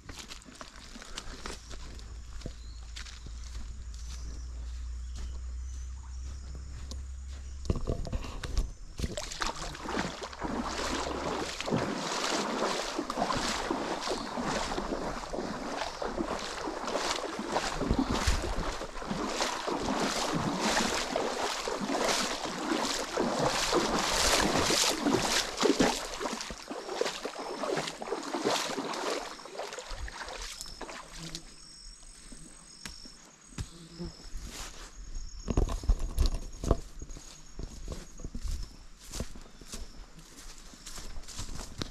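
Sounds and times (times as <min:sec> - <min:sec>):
feet splashing through stream: 0:00.0 - 0:07.6, 0:08.4 - 0:32.4, 0:37.2 - 0:41.9
heavy footsteps: 0:00.0 - 0:26.6.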